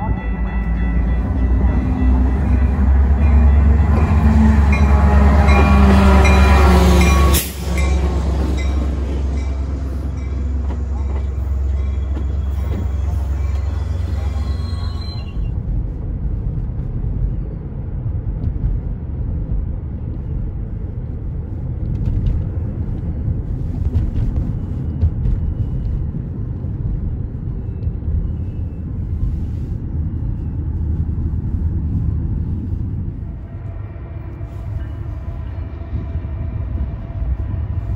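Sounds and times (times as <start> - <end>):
train rolling past: 0.0 - 37.9
road noise inside a car: 10.6 - 37.9.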